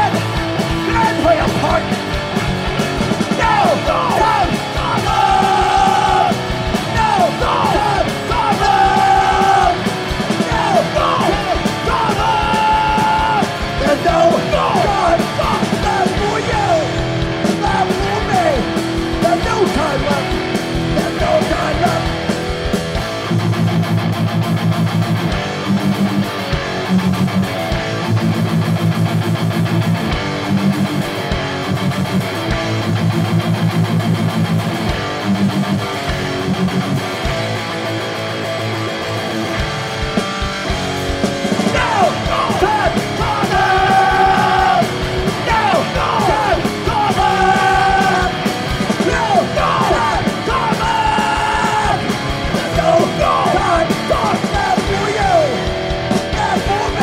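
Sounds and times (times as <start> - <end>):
shouted vocals: 0.0 - 1.9, 3.2 - 22.3, 41.5 - 57.0
distorted guitars riffing: 0.0 - 57.0
punk band playing live: 0.0 - 57.0.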